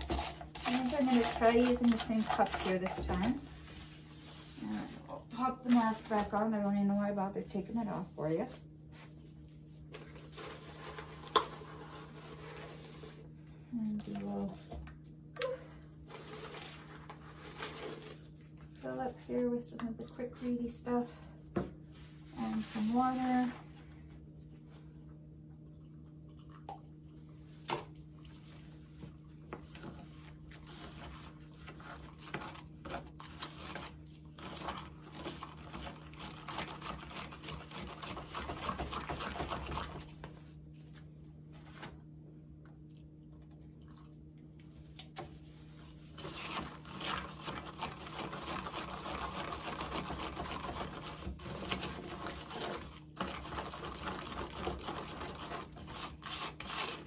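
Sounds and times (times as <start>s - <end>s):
stirrer scraping plastic cup: 0.0s - 6.6s, 9.7s - 13.3s, 16.0s - 21.3s, 22.1s - 23.7s, 29.5s - 40.5s, 45.2s - 57.0s.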